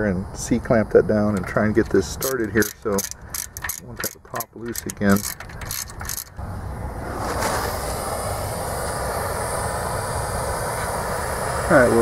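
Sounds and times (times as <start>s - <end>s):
propane torch hissing: 6.4s - 12.0s.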